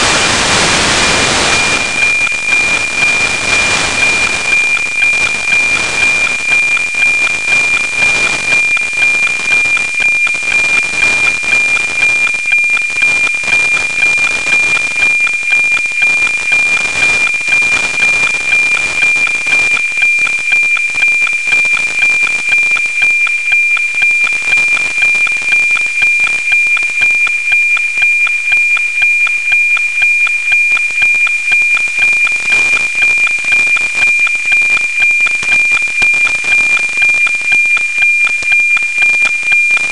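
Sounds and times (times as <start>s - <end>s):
radio static hiss: 0.0s - 19.8s
satellite radio tone tick-tock: 0.0s - 39.9s.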